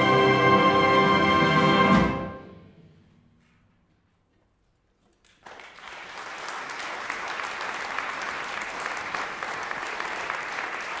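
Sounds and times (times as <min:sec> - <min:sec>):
audience applause: 0:05.2 - 0:11.0.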